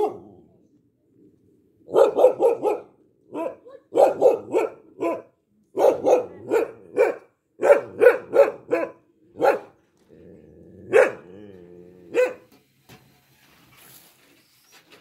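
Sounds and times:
dog barking: 0:00.0 - 0:00.3, 0:01.9 - 0:09.8, 0:10.9 - 0:11.3, 0:12.1 - 0:12.5.

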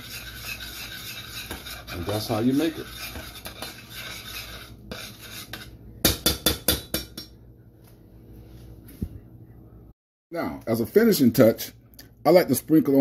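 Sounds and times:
spoon scraping saucepan: 0:00.0 - 0:05.8.

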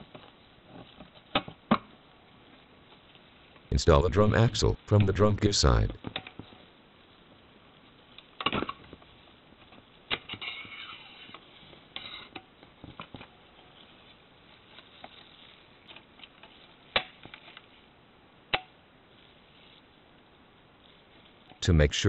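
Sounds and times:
squeaky plastic scrape: 0:10.3 - 0:12.3.

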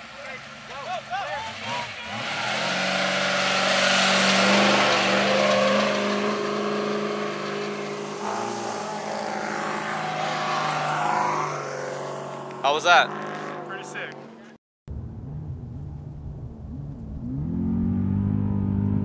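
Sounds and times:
truck engine accelerating: 0:01.3 - 0:19.0.

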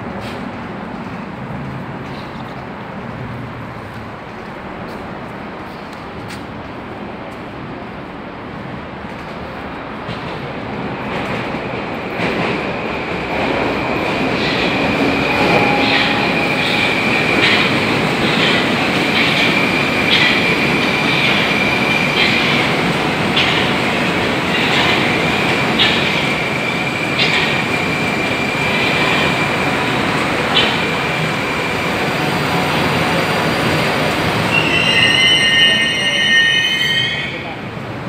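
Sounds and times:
metro train rumble: 0:00.0 - 0:38.0
train wheel clacks: 0:10.0 - 0:31.4
high wheel squeal: 0:15.1 - 0:17.4, 0:32.3 - 0:37.5.

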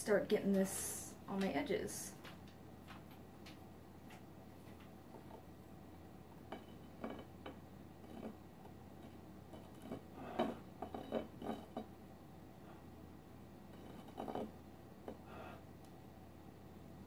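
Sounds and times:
spatula scraping a plate: 0:09.0 - 0:11.9, 0:13.7 - 0:14.6.

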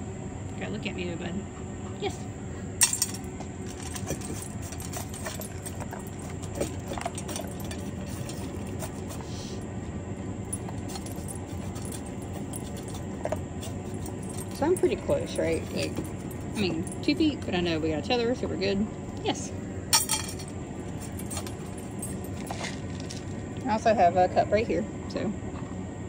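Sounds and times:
kibble clinking in metal bowl: 0:02.8 - 0:09.1, 0:20.0 - 0:22.7.

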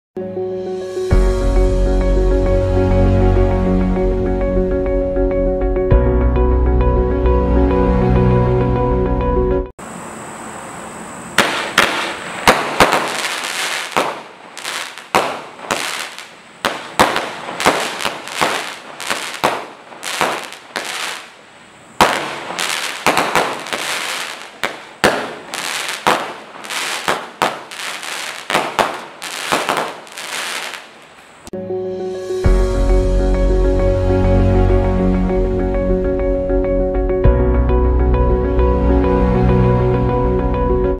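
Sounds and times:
firework crackle: 0:11.3 - 0:31.5
firework launch thumps and bursts: 0:11.4 - 0:21.3, 0:22.0 - 0:31.2.

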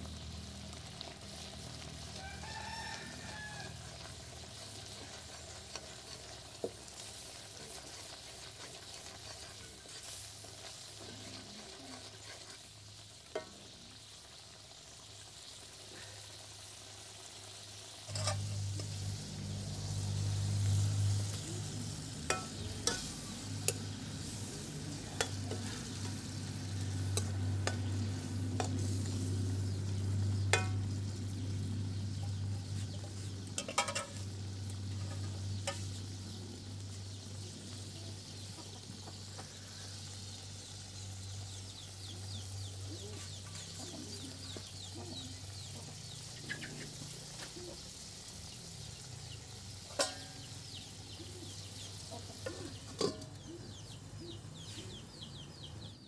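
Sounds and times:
curry bubbling and sizzling: 0:00.0 - 0:54.2
wooden spatula scraping pan: 0:08.4 - 0:12.8
low hum: 0:18.1 - 0:32.6.

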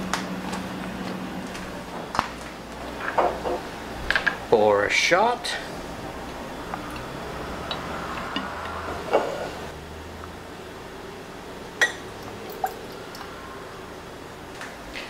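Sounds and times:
liquid pouring into shot glass: 0:12.2 - 0:13.3.

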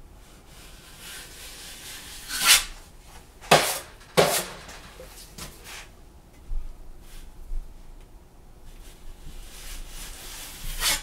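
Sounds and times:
taping knife scraping wall: 0:00.5 - 0:02.8, 0:03.4 - 0:05.9, 0:08.8 - 0:11.0
sharp knocks: 0:03.5 - 0:05.0.

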